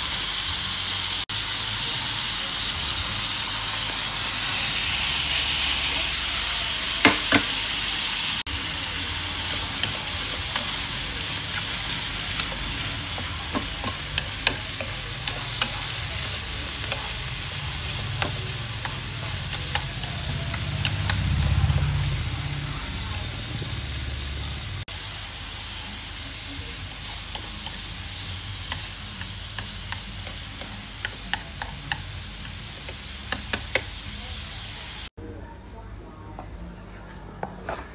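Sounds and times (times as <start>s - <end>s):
food sizzling in a hot pan: 0.0s - 35.1s
chopsticks clicking and scraping pan: 9.4s - 21.4s, 28.6s - 34.0s.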